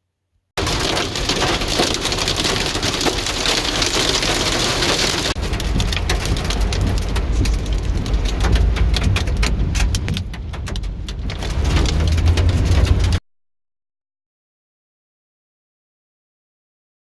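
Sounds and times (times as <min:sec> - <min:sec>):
heavy rain drumming on car: 0:00.6 - 0:13.2
low car rumble: 0:00.6 - 0:13.2.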